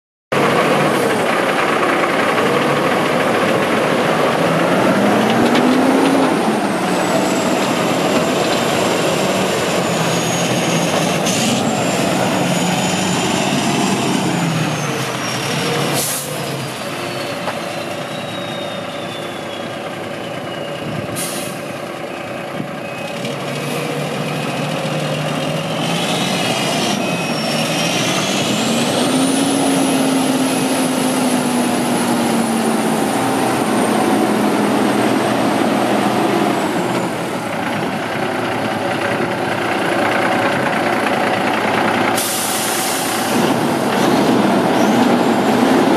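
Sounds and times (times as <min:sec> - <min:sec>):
diesel truck engine running: 0:00.3 - 0:45.9
air brakes hissing: 0:15.4 - 0:19.7, 0:21.1 - 0:21.8, 0:42.1 - 0:43.6.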